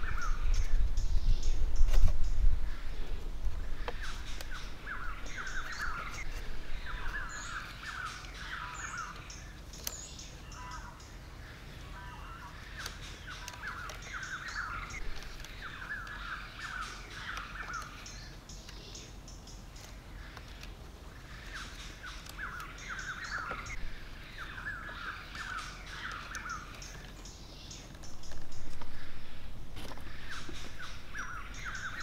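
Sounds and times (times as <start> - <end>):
birds chattering: 0.0 - 32.0
wooden sticks clicking: 12.8 - 18.9.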